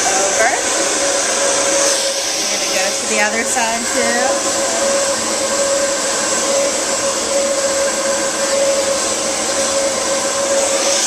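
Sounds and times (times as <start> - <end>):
hair dryer blowing: 0.0 - 11.0.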